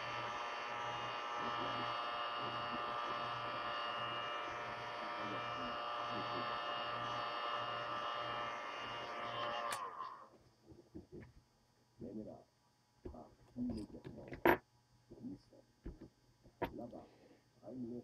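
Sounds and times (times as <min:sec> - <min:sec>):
heat gun fan whining: 0:00.0 - 0:10.2.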